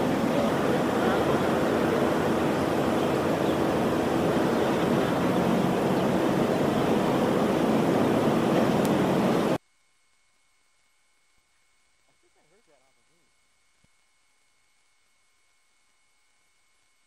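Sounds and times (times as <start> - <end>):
water hose streams rushing: 0.0 - 9.6.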